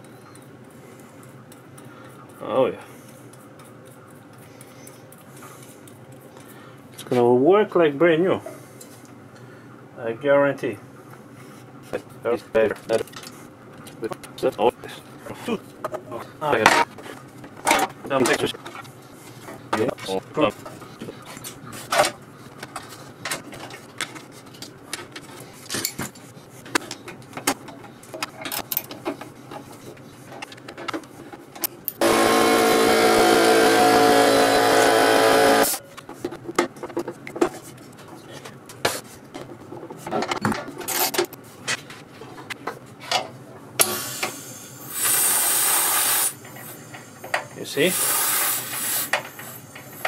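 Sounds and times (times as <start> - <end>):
air compressor running: 32.0 - 35.8, 43.8 - 50.0
compressed air hiss: 43.8 - 50.0.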